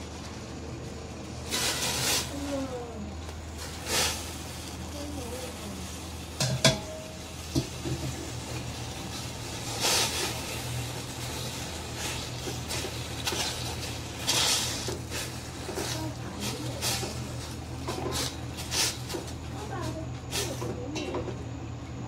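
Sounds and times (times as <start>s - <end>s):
steady low hum: 0.0s - 22.0s
ladle stirring: 5.8s - 21.3s.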